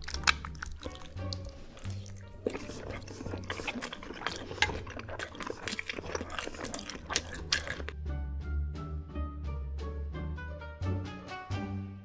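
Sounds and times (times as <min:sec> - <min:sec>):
chewing pasta: 0:00.0 - 0:08.0.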